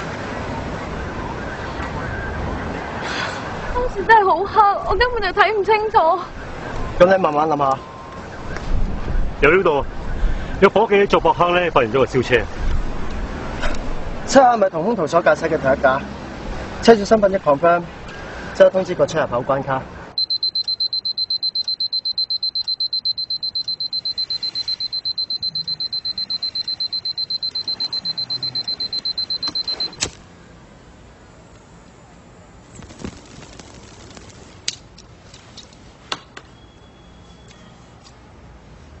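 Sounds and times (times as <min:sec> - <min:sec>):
alarm clock beeping: 0:20.2 - 0:30.0.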